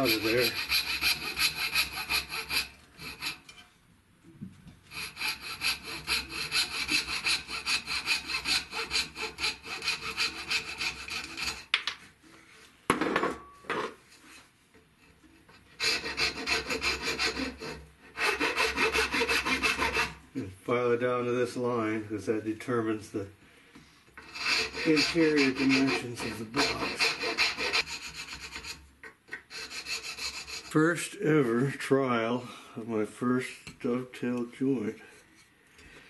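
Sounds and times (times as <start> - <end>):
coping saw cutting wood: 0.0 - 3.4, 4.9 - 11.7, 15.8 - 20.2, 24.2 - 28.8, 29.5 - 30.8
file rasping on wood: 0.0 - 3.4, 4.9 - 11.7, 15.8 - 20.2, 24.2 - 30.8.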